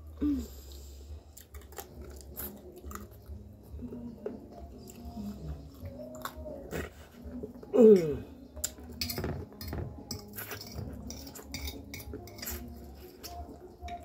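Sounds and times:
fork clinking on glass plate: 0:09.0 - 0:12.7.

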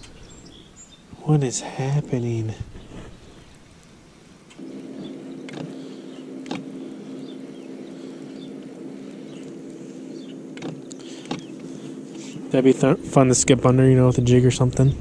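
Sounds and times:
trolling motor humming: 0:00.0 - 0:15.0
sharp clicks: 0:03.4 - 0:05.8, 0:06.4 - 0:06.7, 0:08.3 - 0:11.7.

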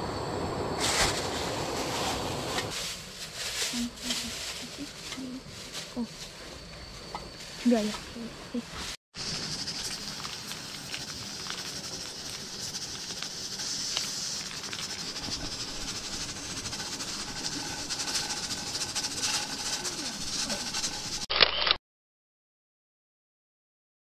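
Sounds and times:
steam hissing: 0:09.2 - 0:21.3.

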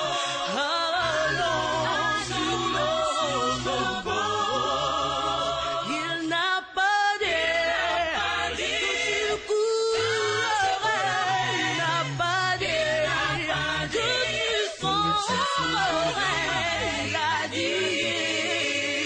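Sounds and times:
choir singing: 0:00.0 - 0:19.0.

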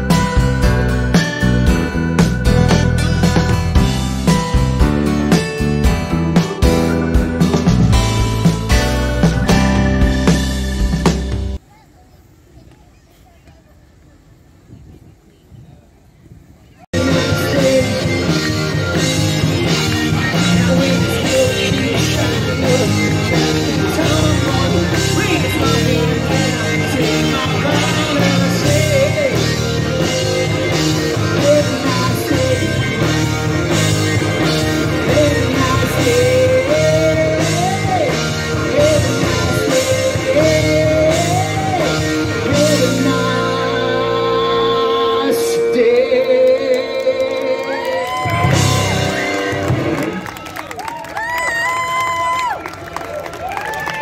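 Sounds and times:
electric guitars: 0:00.0 - 0:11.6, 0:17.0 - 0:54.0
drumbeat: 0:00.1 - 0:11.6
singer: 0:17.0 - 0:49.4.

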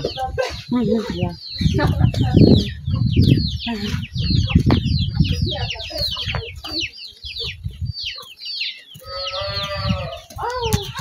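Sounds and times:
chicks peeping: 0:00.0 - 0:11.0
adult chicken call: 0:09.0 - 0:10.3.

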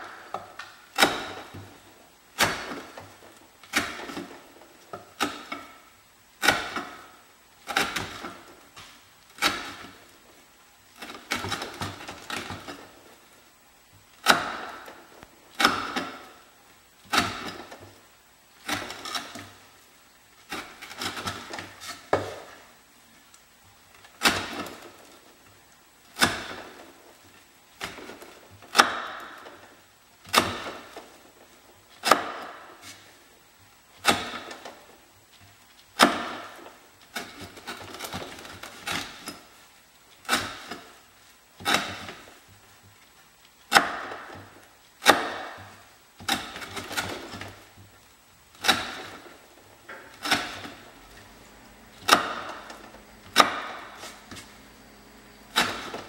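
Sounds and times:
knife cutting through rope: 0:50.2 - 0:50.8.

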